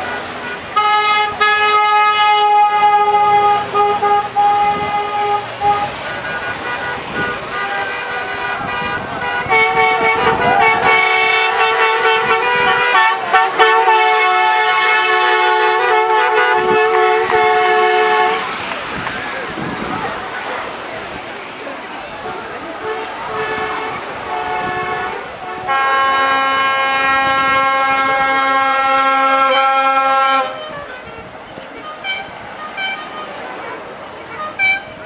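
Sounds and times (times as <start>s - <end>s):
steady car horn note: 0.0s - 18.5s, 22.8s - 33.4s, 34.2s - 35.0s
multi-tone car horn blast: 0.0s - 18.6s, 22.2s - 35.0s
road and engine noise: 0.0s - 35.0s.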